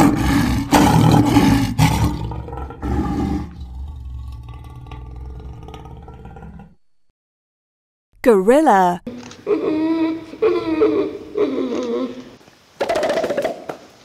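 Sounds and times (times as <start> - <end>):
lion roaring: 0.0 - 6.8.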